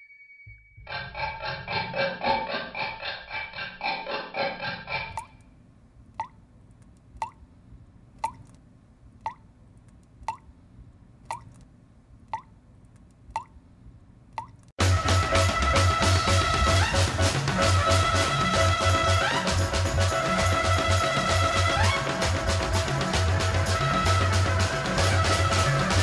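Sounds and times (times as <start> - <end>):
water dripping from a tap: 6.2 - 6.4, 7.2 - 7.4, 8.2 - 8.5, 9.2 - 9.4, 10.2 - 10.5, 11.3 - 11.6, 12.3 - 12.5, 13.3 - 13.6, 14.4 - 14.7
loud jazz music: 14.8 - 26.0
music: 14.8 - 26.0.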